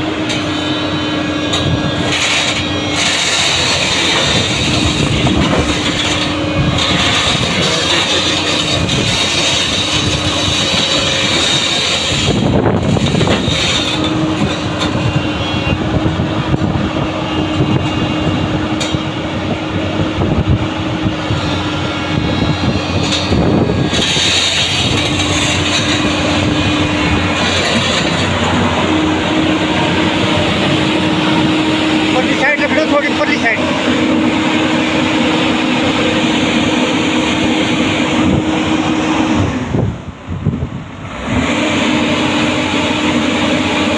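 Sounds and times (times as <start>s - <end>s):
diesel engine under load: 0.0s - 43.9s
hydraulic whine: 0.0s - 43.9s
steel tracks clattering: 1.5s - 15.2s, 21.5s - 39.6s.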